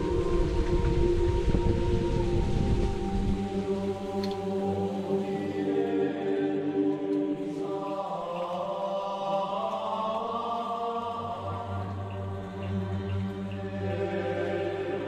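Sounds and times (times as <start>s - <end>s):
slow choir-like chanting: 0.0s - 15.0s.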